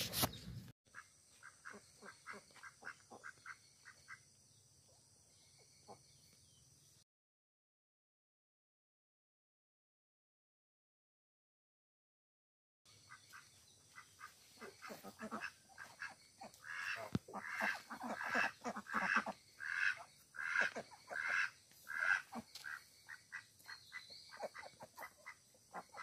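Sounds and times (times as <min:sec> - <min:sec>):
ducks quacking: 0:00.9 - 0:04.2, 0:13.0 - 0:26.0.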